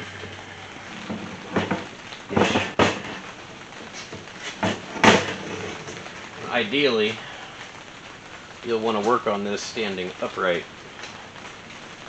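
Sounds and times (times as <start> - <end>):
metal scraping: 0.0 - 6.5.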